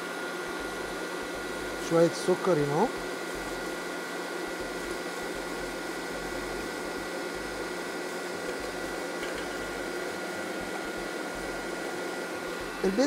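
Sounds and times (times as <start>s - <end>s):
electric mixer whining: 0.0s - 13.0s.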